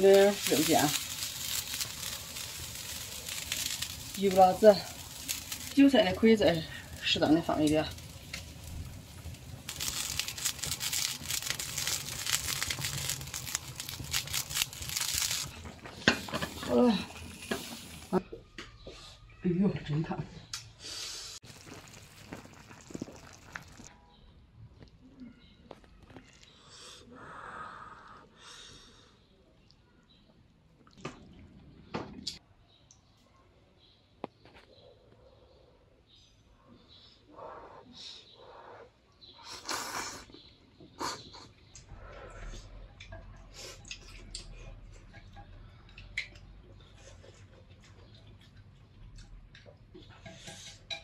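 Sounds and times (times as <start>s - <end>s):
broth boiling and sizzling: 0.0s - 18.2s, 21.1s - 23.9s, 42.6s - 51.0s
person slurping noodles: 21.4s - 23.9s.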